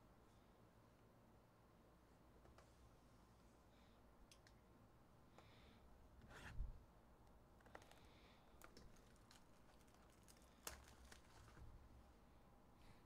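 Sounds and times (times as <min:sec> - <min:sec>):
foil pack rustling: 0:07.7 - 0:11.9.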